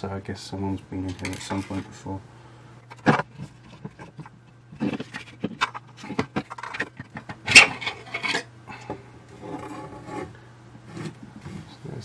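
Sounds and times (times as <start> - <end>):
metal parts scraping and clinking: 1.1 - 1.9, 4.8 - 8.5.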